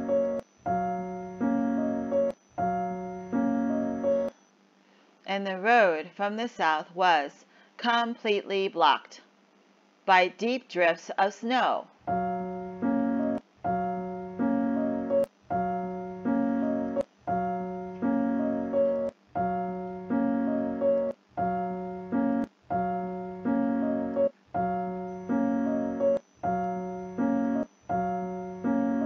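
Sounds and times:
two-chord piano figure: 0.0 - 4.3, 12.1 - 29.0.

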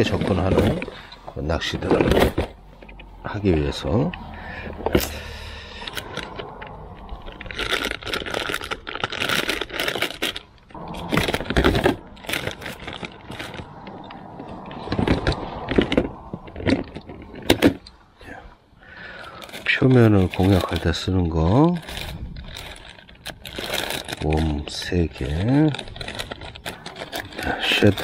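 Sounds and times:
lures rattling against plastic box: 4.8 - 17.9, 19.1 - 28.0.

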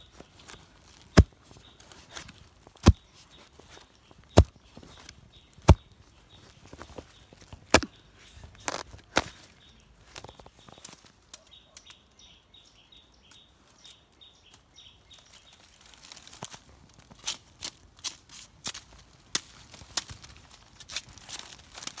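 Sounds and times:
dry leaves crackling: 0.0 - 11.8, 13.2 - 22.0
faint high bird chirps: 2.9 - 15.9.

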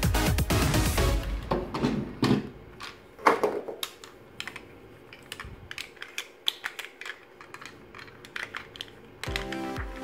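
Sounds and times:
plastic toy parts clicking: 3.8 - 10.0.

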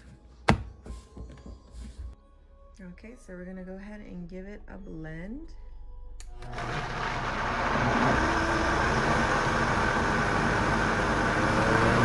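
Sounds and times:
blender running: 6.4 - 12.0.

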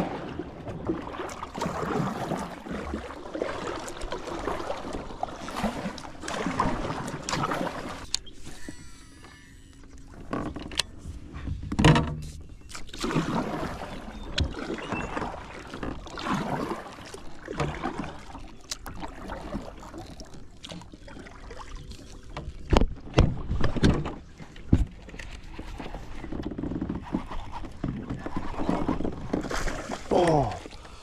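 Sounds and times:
paddle splashing in water: 0.0 - 31.0
paddle knocking against kayak: 10.1 - 19.8, 22.2 - 30.8.

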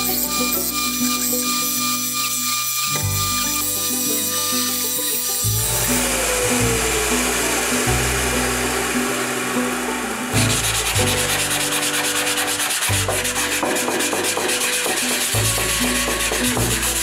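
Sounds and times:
sandpaper rasping on steel: 0.0 - 7.0, 10.5 - 17.0
background music with bass line: 5.4 - 17.0.

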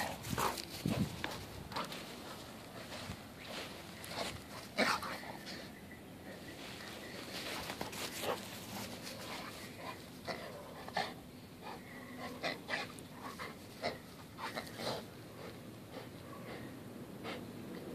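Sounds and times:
dog panting: 7.6 - 17.9.

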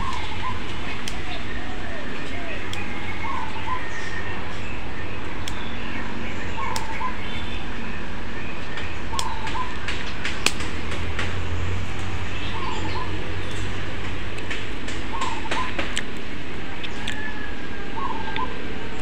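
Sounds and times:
scissors snipping leaves: 0.0 - 4.1, 5.2 - 5.9, 6.6 - 7.2, 8.6 - 12.2
bird calling: 0.0 - 13.9, 14.5 - 19.0
steady low hum: 0.0 - 19.0.

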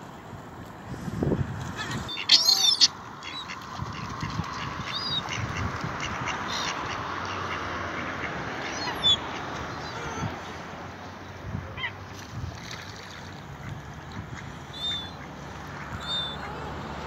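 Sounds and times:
gulls and ducks calling: 1.8 - 10.6, 13.6 - 16.8.

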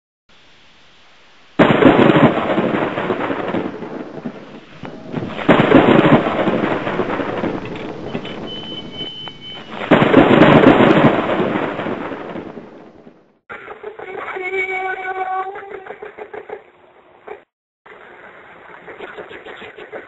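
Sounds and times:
loud radio static: 4.2 - 9.9, 13.5 - 16.6, 17.3 - 20.0.

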